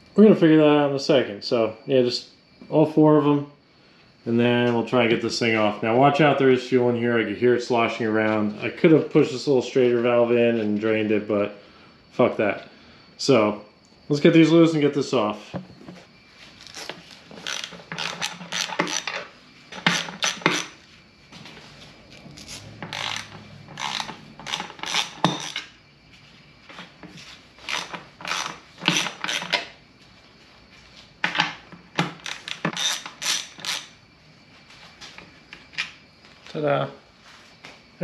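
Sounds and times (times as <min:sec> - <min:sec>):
hand ratchet clicking: 0:16.7 - 0:20.7, 0:22.4 - 0:25.7, 0:27.6 - 0:29.7, 0:32.0 - 0:33.9.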